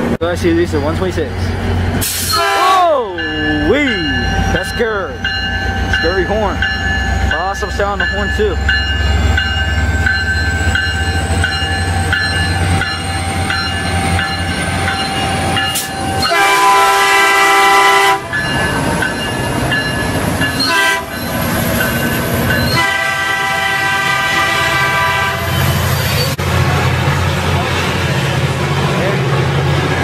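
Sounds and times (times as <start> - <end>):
diesel locomotive engine running: 0.0 - 30.0
multi-chime train horn: 2.3 - 4.7, 15.7 - 18.9, 20.6 - 21.2, 22.7 - 25.6.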